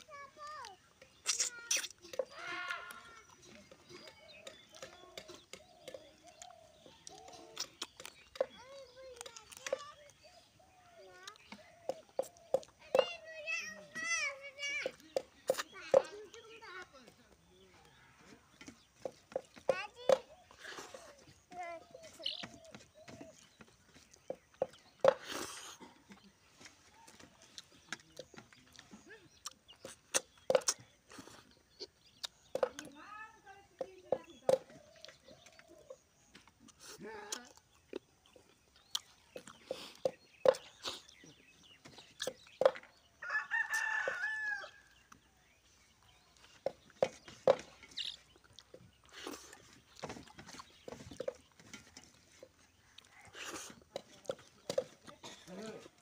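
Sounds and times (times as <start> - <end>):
wet chewing clicks: 0.0 - 13.1, 14.8 - 16.9, 18.6 - 33.0, 33.8 - 43.0, 44.8 - 56.0
eating clicks and smacks: 1.0 - 2.3, 4.3 - 10.2, 27.5 - 32.9, 34.5 - 41.2
slurping: 1.1 - 2.2
mouth smack: 1.2 - 2.0
rooster crowing: 43.2 - 44.8.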